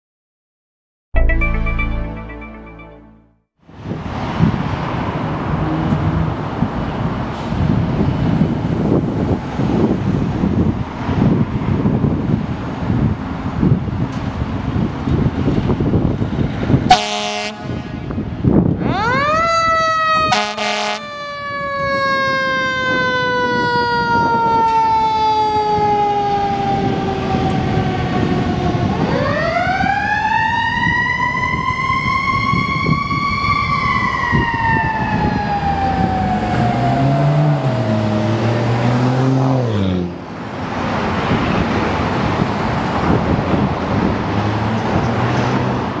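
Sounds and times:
road traffic: 3.6s - 46.0s
fire engine siren: 16.4s - 39.5s
fire engine horn blast: 16.9s - 24.7s.

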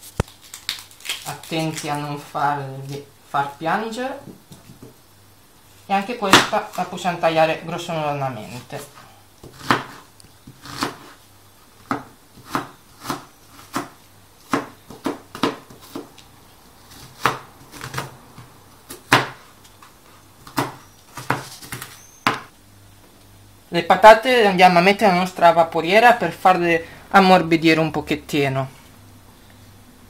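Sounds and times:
knife chopping on plastic board: 9.4s - 11.1s, 11.8s - 16.1s, 16.9s - 18.2s, 18.9s - 19.4s, 20.4s - 22.5s.

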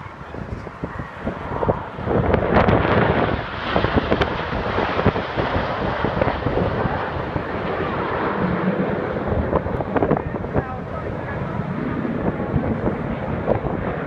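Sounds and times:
jets passing overhead: 0.0s - 14.0s
wind buffeting microphone: 0.0s - 14.0s.

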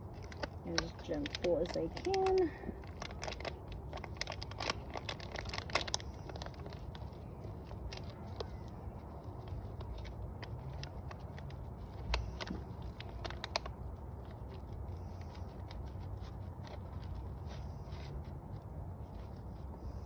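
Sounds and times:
sharp plastic cracks: 0.0s - 6.8s
plastic pot crackling: 0.0s - 20.0s
steady low rumble: 0.0s - 20.0s.

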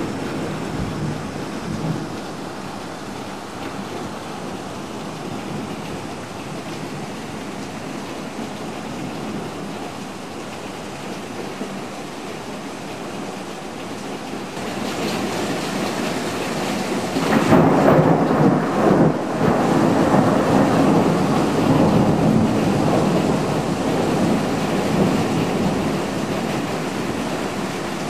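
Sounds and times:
thunder rumbling: 0.0s - 2.3s, 16.9s - 27.2s
heavy rain: 0.0s - 28.0s.

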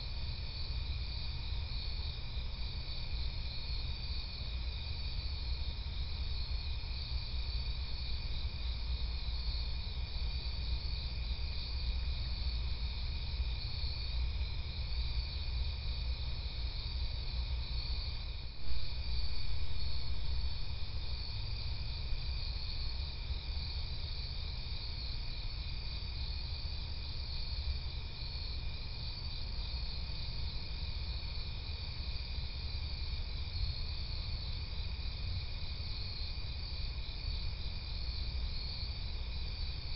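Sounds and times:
crickets trilling: 0.0s - 39.9s
low steady rumble: 16.7s - 25.4s.

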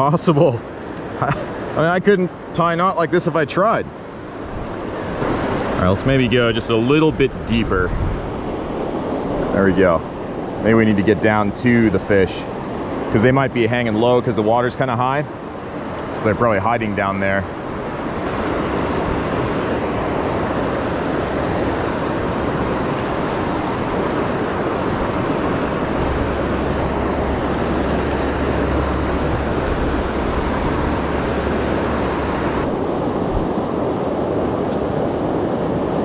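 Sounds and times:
river rushing over rocks: 12.1s - 36.0s.

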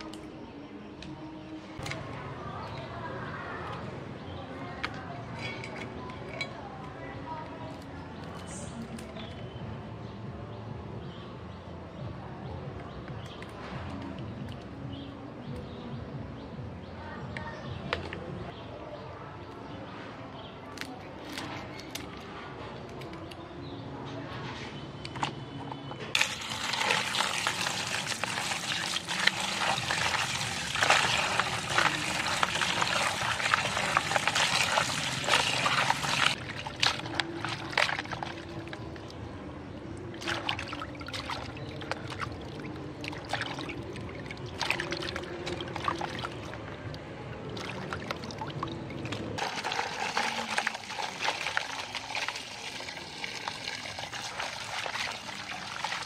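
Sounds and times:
water pouring into plastic basin: 26.2s - 39.2s, 40.0s - 56.0s
water splashing: 26.2s - 39.2s, 39.8s - 56.0s.

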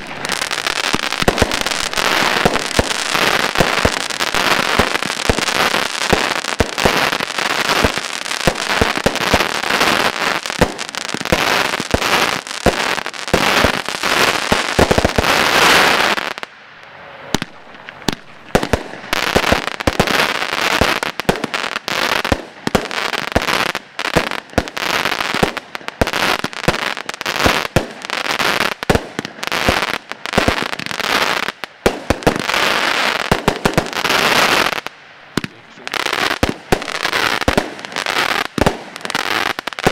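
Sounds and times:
firework shots bursting overhead: 0.0s - 16.4s, 17.3s - 39.9s.

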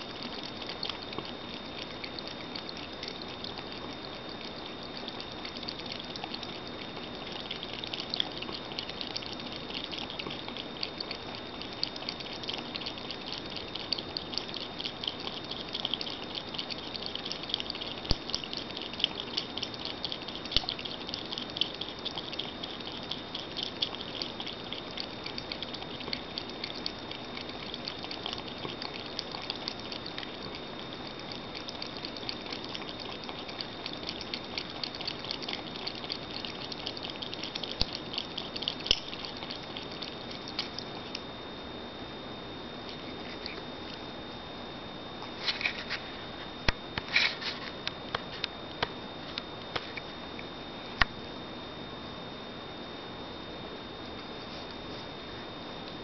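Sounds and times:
cat lapping water: 0.0s - 41.6s, 42.8s - 44.2s.

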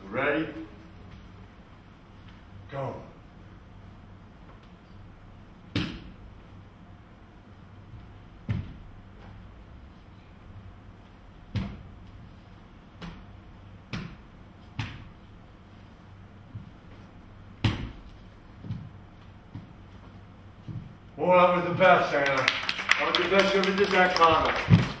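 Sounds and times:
hand strikes slapping: 5.7s - 6.2s, 13.9s - 15.1s, 17.6s - 18.8s
bare foot stamps on wooden floor: 18.6s - 20.0s, 20.6s - 21.0s.

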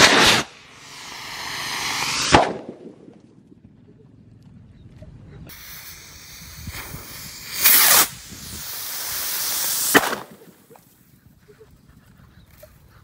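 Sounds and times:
rocket hiss in flight: 0.0s - 2.7s, 5.5s - 11.0s
firework rocket whoosh: 0.0s - 2.9s, 5.5s - 10.7s
sharp pop: 1.7s - 3.0s, 9.8s - 10.4s.

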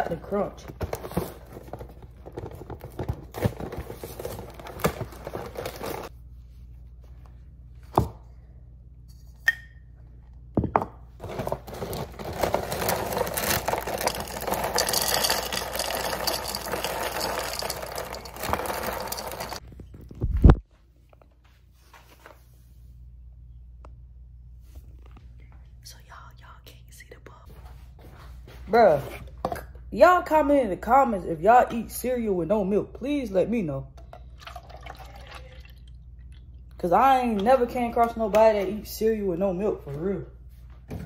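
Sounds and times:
plastic bag crinkling: 11.2s - 19.6s
cereal pouring into a bowl: 11.8s - 19.6s.

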